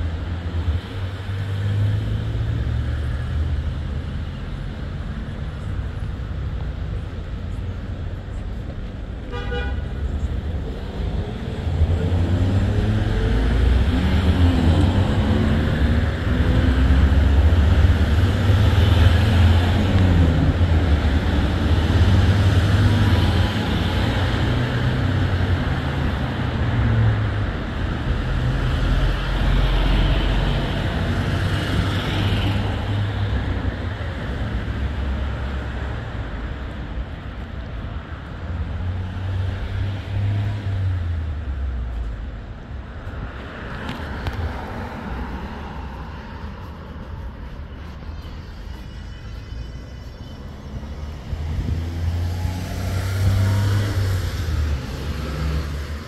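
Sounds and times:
vehicle engine and road noise: 0:00.0 - 0:56.0
car horn toot: 0:09.3 - 0:09.8.

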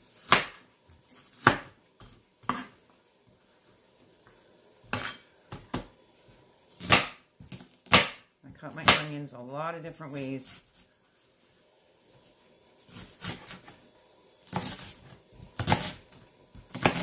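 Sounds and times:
knife chopping on cutting board: 0:00.2 - 0:00.6, 0:01.2 - 0:02.8, 0:06.8 - 0:09.1, 0:14.5 - 0:15.0, 0:15.6 - 0:17.0.

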